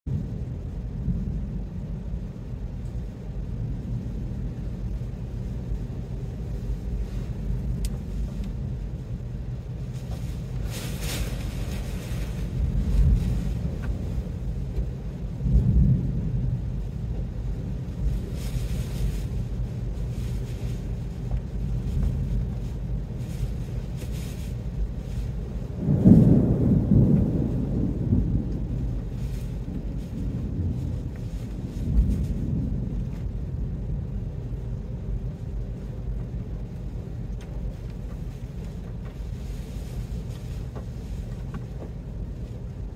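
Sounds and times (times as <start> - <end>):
wind buffeting the microphone: 0.1 - 42.9
wind-driven rain hissing: 0.1 - 42.9.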